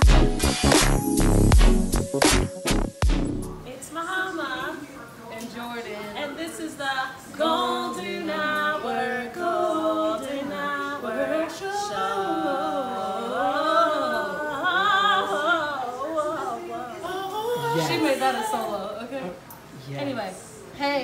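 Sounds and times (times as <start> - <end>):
two women singing: 3.9 - 19.4.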